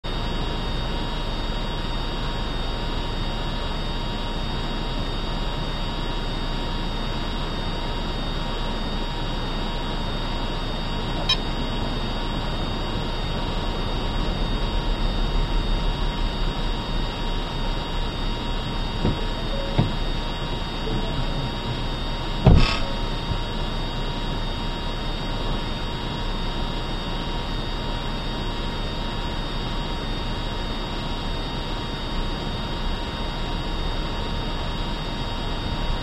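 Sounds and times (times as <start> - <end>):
constant high tones: 10.6 - 15.1, 16.1 - 26.0.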